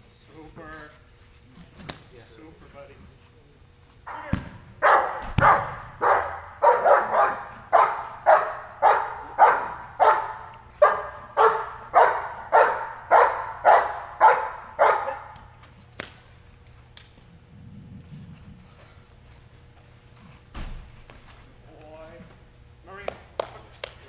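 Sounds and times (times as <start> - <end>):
dog barking: 4.8 - 15.4.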